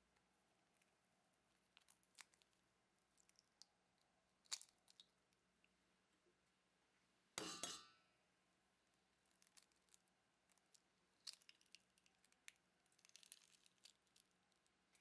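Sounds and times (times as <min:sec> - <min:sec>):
eggshells clicking and tapping: 0:00.1 - 0:05.1, 0:09.2 - 0:15.0
egg cracking: 0:00.1 - 0:05.4, 0:08.9 - 0:15.0.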